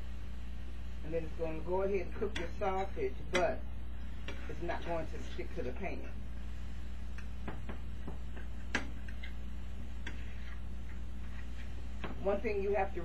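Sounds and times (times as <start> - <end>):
fork scraping a skillet: 8.2 - 11.8.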